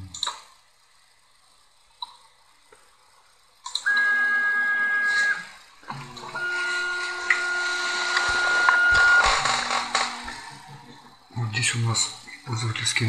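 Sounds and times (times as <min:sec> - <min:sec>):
stepper motor lower whine: 0:03.8 - 0:11.2
stepper motor high whine: 0:04.1 - 0:11.0.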